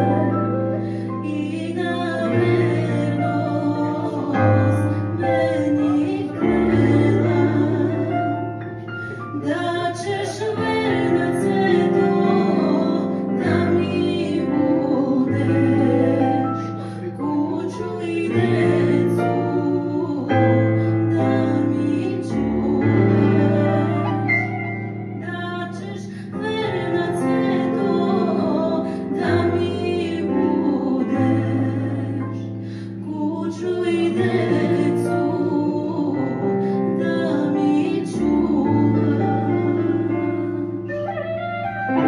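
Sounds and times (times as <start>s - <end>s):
woman singing into microphone: 0.0s - 41.1s
electronic keyboard chords: 34.2s - 42.0s.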